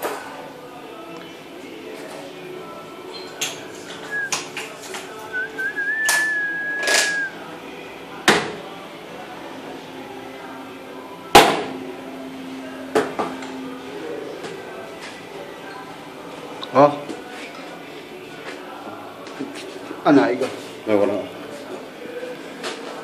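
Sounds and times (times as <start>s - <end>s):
thin whistle: 4.0s - 4.5s, 5.3s - 7.4s.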